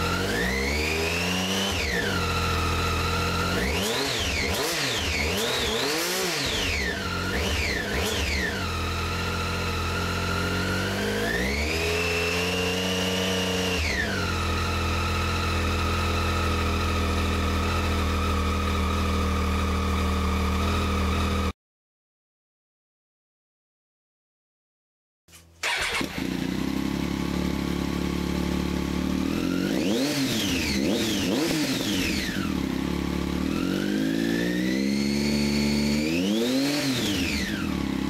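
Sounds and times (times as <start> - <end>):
motorcycle engine revving: 0.0 - 21.5, 25.6 - 38.0.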